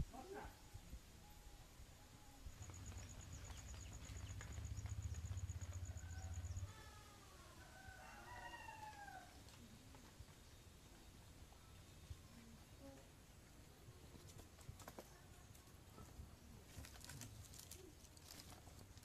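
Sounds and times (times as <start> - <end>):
rooster crowing: 5.6 - 9.4.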